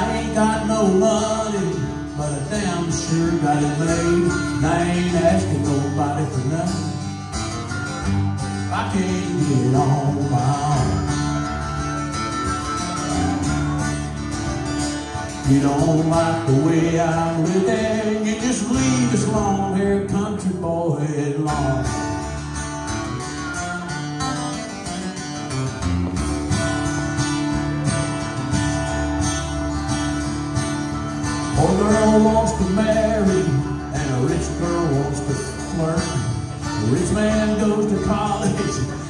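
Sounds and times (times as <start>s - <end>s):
acoustic guitars strumming: 0.0s - 39.0s
harmonica bending notes: 11.0s - 15.4s.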